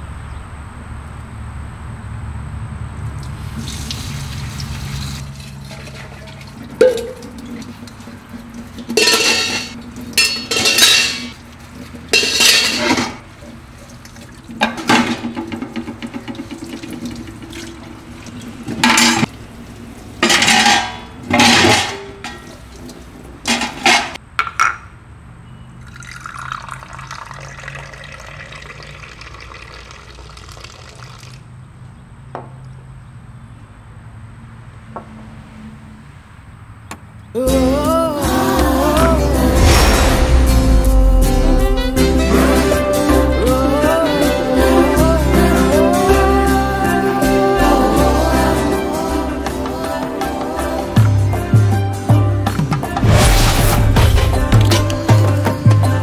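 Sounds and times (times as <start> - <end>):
dishes clinking: 5.7 - 11.4, 12.1 - 13.6, 14.6 - 17.1, 20.2 - 22.6, 23.5 - 24.8
tap water running into sink: 13.9 - 18.8, 26.0 - 31.4.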